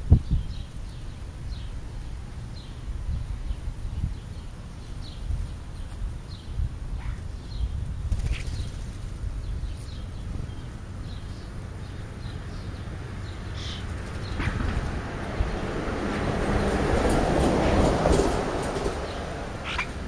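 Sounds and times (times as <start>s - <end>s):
low street rumble: 0.0s - 20.0s
high bird chirps: 9.7s - 14.8s, 19.6s - 20.0s
vehicle approaching: 10.9s - 20.0s.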